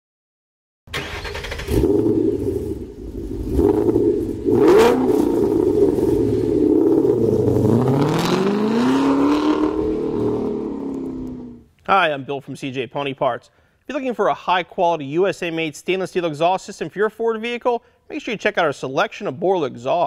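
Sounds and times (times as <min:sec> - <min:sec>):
car engine revving: 0:01.0 - 0:11.6.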